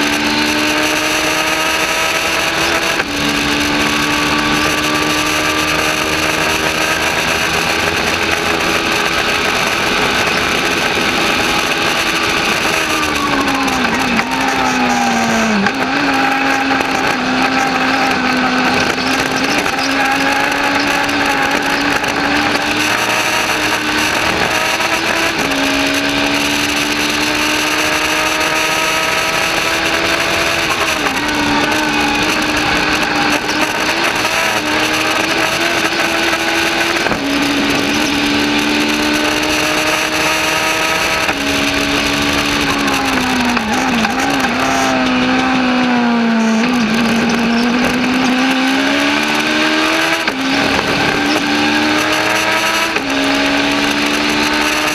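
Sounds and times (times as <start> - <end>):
race car engine running hard: 0.0 - 54.9.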